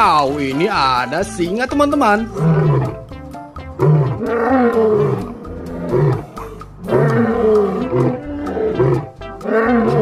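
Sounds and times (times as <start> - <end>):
lion roaring: 2.4 - 3.2, 3.8 - 10.0.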